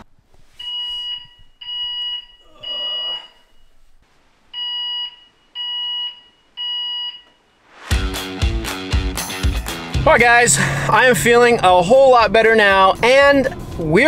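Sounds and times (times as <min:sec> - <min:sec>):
fire alarm beeping: 0:00.6 - 0:03.7, 0:04.5 - 0:07.6.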